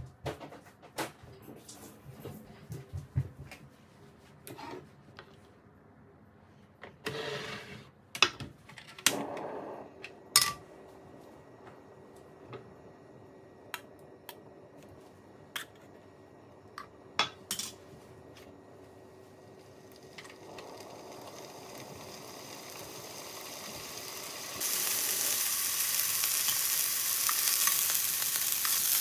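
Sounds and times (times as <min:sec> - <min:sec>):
faint steady hum: 0:09.1 - 0:27.4
frying pan clattering on stove: 0:10.4 - 0:10.7.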